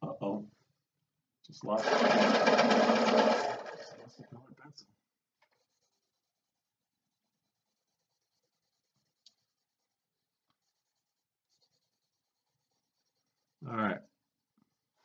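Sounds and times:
pencil scratching on paper: 5.4s - 15.0s.

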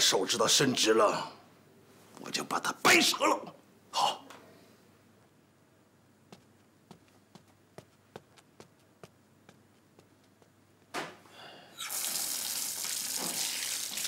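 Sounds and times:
faint knocks and shuffles: 6.2s - 11.3s
tap water gushing into basin: 11.8s - 14.0s.

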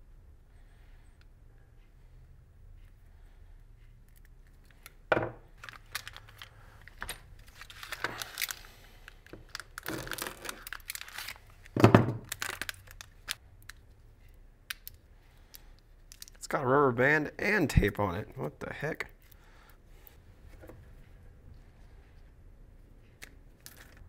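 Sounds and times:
plastic bag crinkling: 5.6s - 13.4s.

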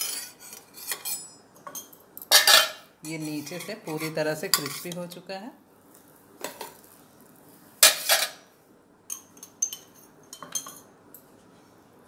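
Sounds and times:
metal utensils clattering: 0.0s - 2.8s, 7.8s - 8.4s.

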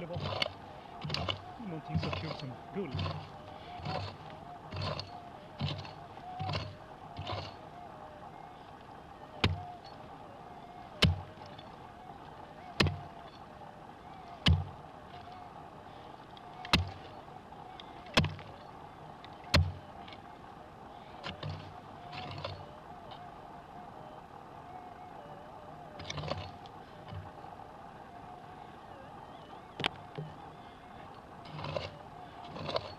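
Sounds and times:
dirt scraping: 0.0s - 23.3s, 25.9s - 27.5s, 29.8s - 32.9s
faint wavering tone: 0.0s - 32.9s
pick striking stony ground: 11.0s - 11.3s, 14.4s - 14.7s, 16.6s - 17.0s, 18.1s - 18.5s.

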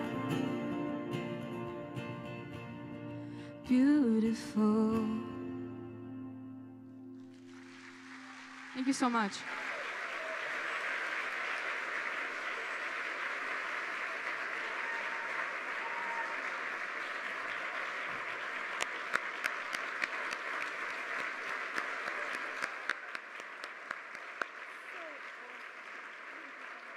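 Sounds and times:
audience applauding: 7.2s - 26.9s
sharp individual claps: 17.0s - 26.9s.

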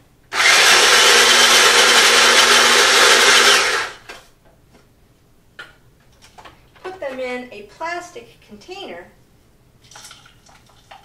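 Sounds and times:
electric nut chopper whirring: 0.3s - 4.0s.

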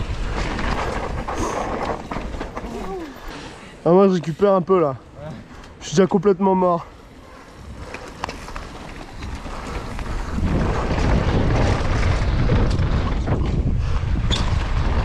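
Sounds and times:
bike clicks and rattles: 0.0s - 4.7s, 6.9s - 15.0s
wind buffeting microphone: 6.9s - 15.0s.

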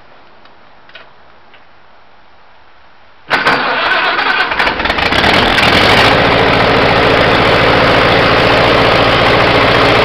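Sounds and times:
tractor engine starting: 3.3s - 10.0s.

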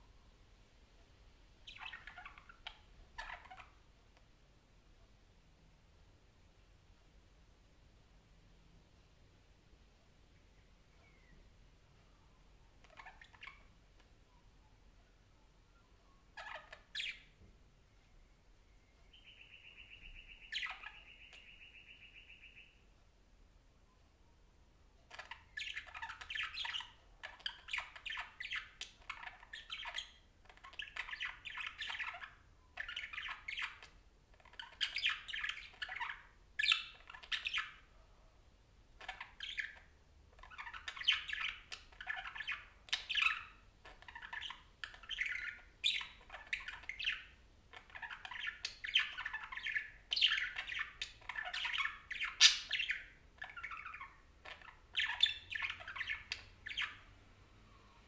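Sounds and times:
budgerigar chirps and squawks: 1.6s - 3.8s, 12.8s - 13.7s, 16.3s - 17.3s, 19.2s - 22.7s, 25.0s - 37.9s, 39.0s - 57.1s.

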